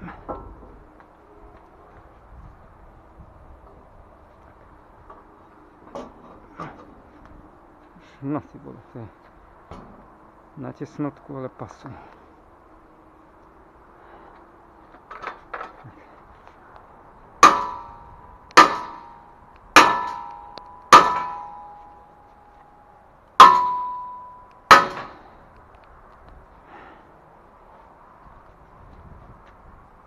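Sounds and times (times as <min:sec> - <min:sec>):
hammer clanging on steel: 0:17.4 - 0:25.3.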